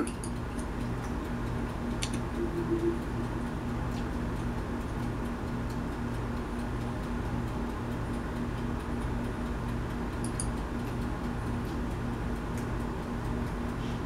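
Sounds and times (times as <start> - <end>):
steady low hum: 0.0 - 14.0
keyboard and mouse clicks: 2.0 - 3.0, 10.2 - 10.5.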